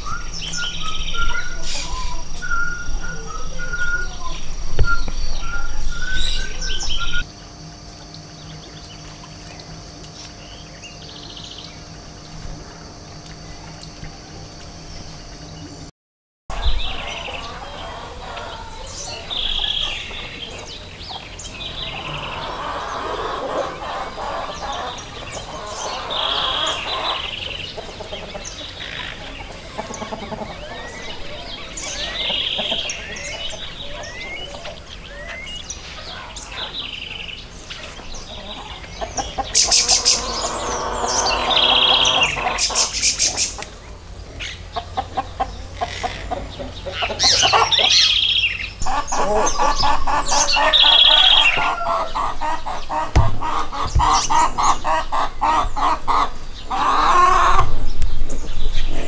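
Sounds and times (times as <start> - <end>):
wild birds calling and chirping: 0.0 - 15.9, 16.5 - 59.0
chickens clucking: 16.5 - 59.0.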